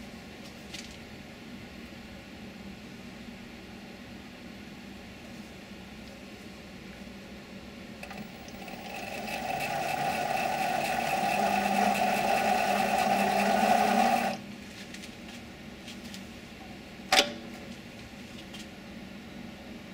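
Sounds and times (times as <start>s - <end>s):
lathe motor whine: 8.0s - 14.4s.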